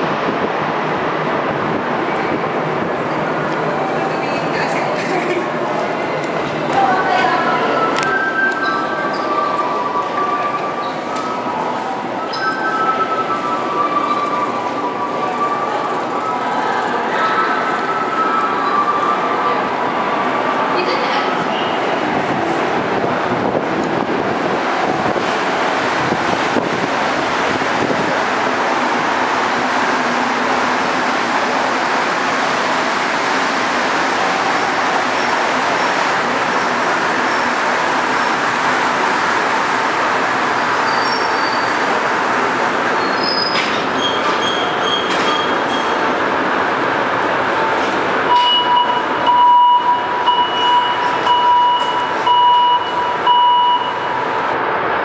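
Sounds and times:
metro train rumble: 0:00.0 - 0:55.0
electronic warning beeps: 0:48.3 - 0:54.2.

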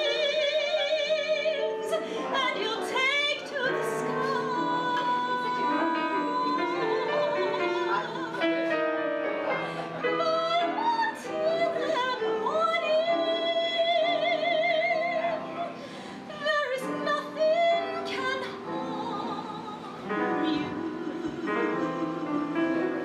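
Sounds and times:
woman singing a ballad: 0:00.0 - 0:08.8, 0:10.1 - 0:23.0
piano accompaniment: 0:00.0 - 0:23.0.

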